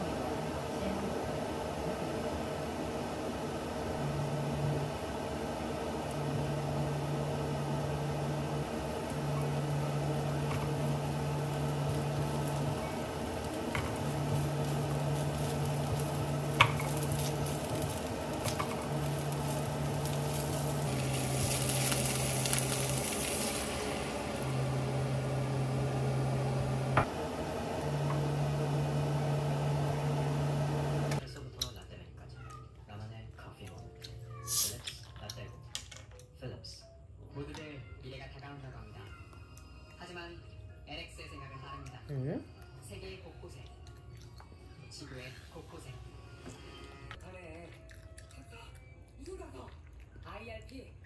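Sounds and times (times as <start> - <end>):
low hum: 3.9 - 31.2
food sizzling in a frying pan: 6.2 - 27.0.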